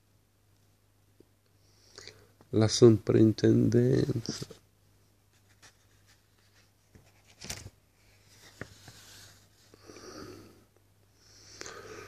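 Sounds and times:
book page rustling: 5.3s - 9.7s.

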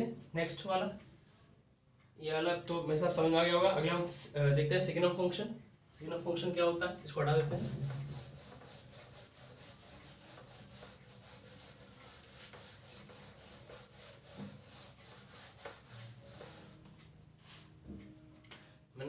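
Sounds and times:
duster rubbing on whiteboard: 7.2s - 17.8s.

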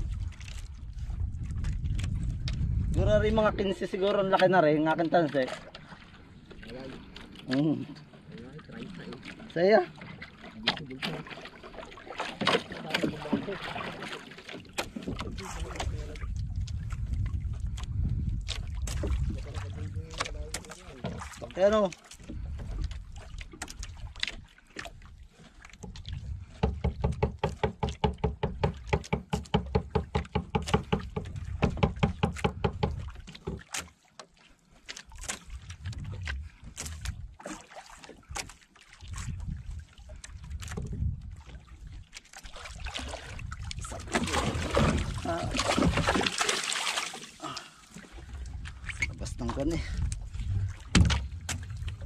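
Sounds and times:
fish thrashing and splashing: 9.2s - 28.0s, 29.8s - 52.0s.

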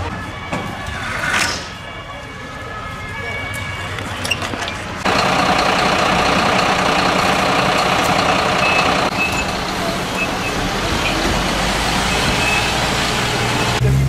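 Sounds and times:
diesel engines running: 3.8s - 14.0s.

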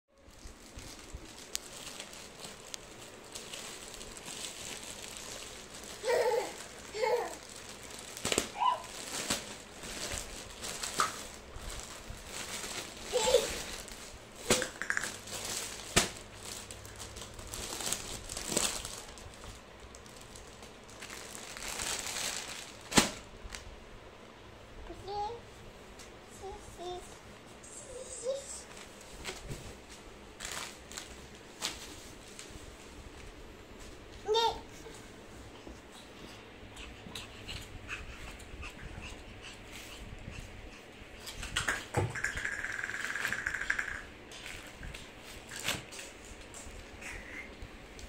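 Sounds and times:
plastic mailer bag crinkling: 0.2s - 23.3s, 30.4s - 32.0s.

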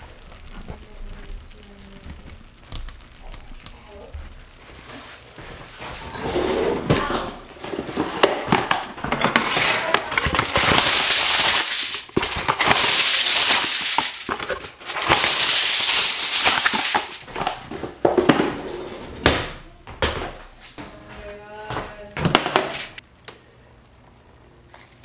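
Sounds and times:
crinkling rustling handling: 0.0s - 18.6s.

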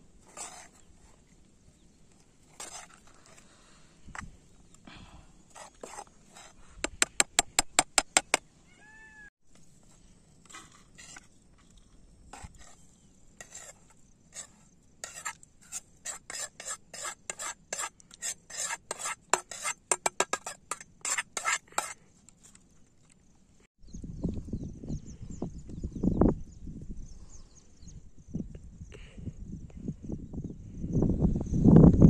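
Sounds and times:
spoon scraping food onto plate: 12.4s - 22.0s.

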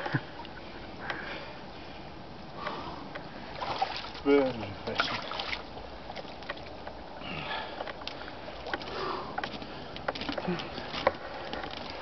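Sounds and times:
man breathing hard: 1.0s - 3.2s, 7.2s - 11.6s
clicks on wooden dock: 7.8s - 12.0s.

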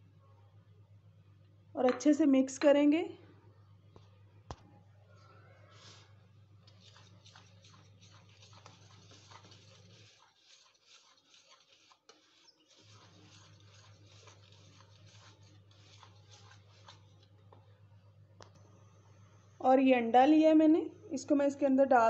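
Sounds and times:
low steady hum: 0.0s - 10.1s, 12.9s - 22.0s
utensil scratching in ceramic bowl: 5.6s - 17.4s.

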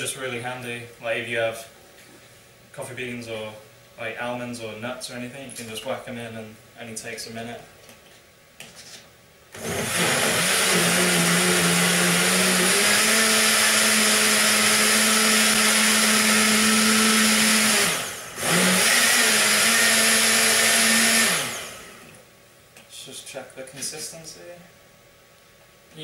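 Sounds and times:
blender motor running: 9.5s - 22.2s.

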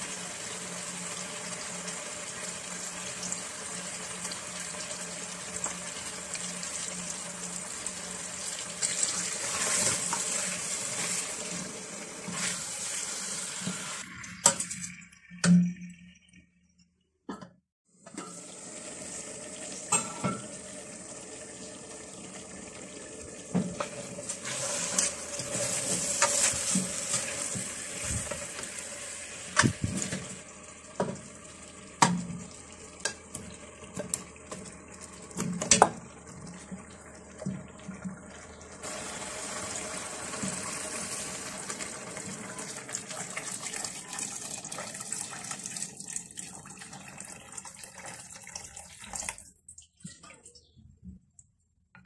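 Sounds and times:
water pouring into pot: 0.0s - 16.1s, 18.2s - 50.0s
hiss of stirring in pot: 9.0s - 14.0s, 23.7s - 30.4s.

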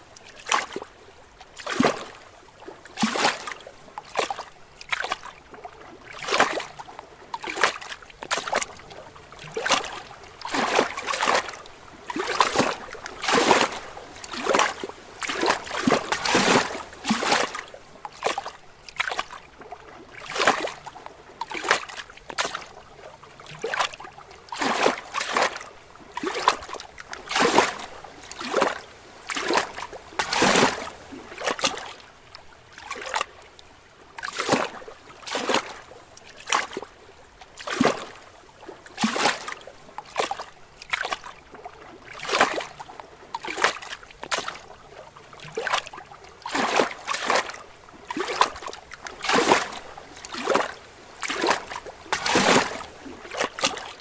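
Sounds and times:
waves lapping against rocks: 0.0s - 54.0s.

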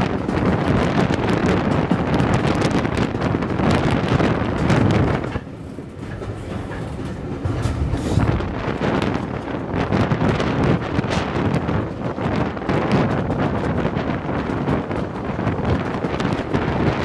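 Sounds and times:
train running noise: 0.0s - 17.0s
wind rushing over microphone: 0.0s - 17.0s.

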